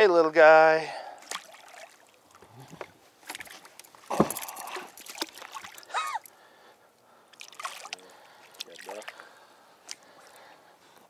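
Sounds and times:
fish thrashing and splashing in water: 1.2s - 6.3s, 7.3s - 9.2s.

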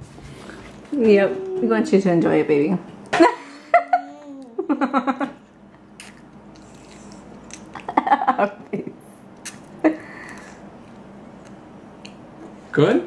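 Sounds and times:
young child crying wordlessly: 3.8s - 4.8s.

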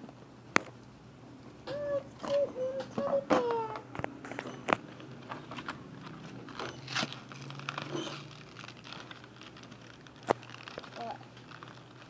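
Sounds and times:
plastic packaging crinkling: 3.4s - 12.0s.

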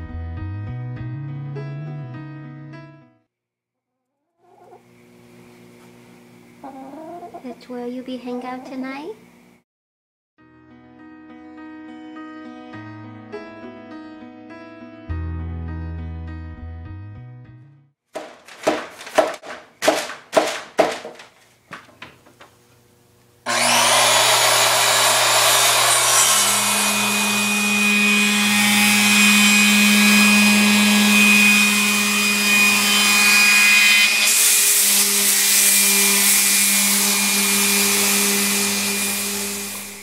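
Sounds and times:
sharp knocks: 18.2s - 22.5s
circular saw running: 23.4s - 40.0s.

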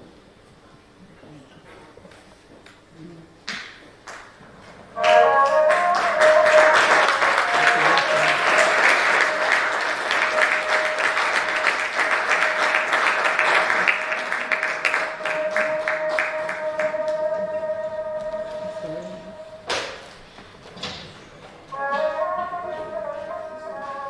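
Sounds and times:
audience clapping: 3.5s - 18.6s
short chord: 5.0s - 19.7s
steady held tone: 5.0s - 19.7s.

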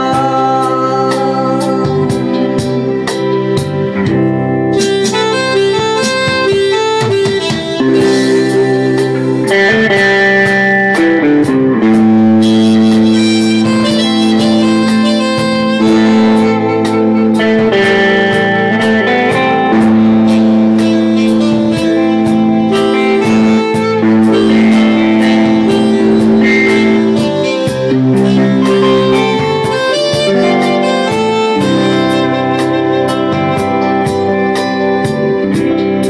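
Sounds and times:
keyboard chords and lead line: 0.0s - 36.0s
steady ticking beat: 1.9s - 36.0s.

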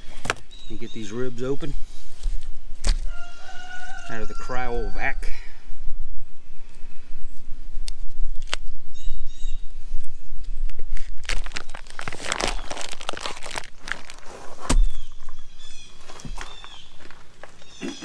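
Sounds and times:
plastic wrap crinkling: 11.0s - 18.0s.

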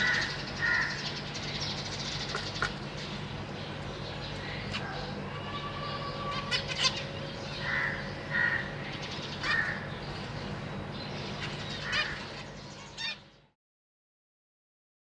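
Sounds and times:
steady low hum: 0.0s - 13.6s
finch nasal calls: 4.2s - 9.9s, 11.3s - 13.3s.

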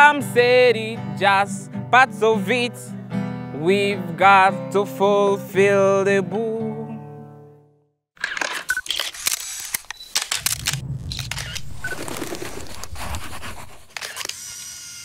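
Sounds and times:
sharp clicks and scraping: 8.2s - 14.4s
low rumble: 10.2s - 13.9s.

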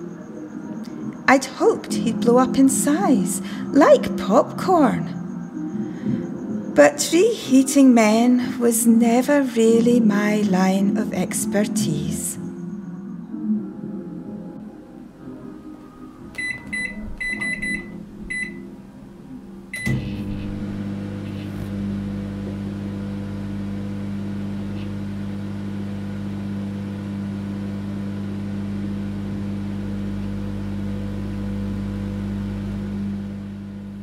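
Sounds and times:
microwave keypad beeps: 16.4s - 18.6s, 19.8s - 20.3s
microwave oven humming: 16.4s - 18.8s, 19.5s - 34.0s
microwave click: 19.8s - 21.0s.

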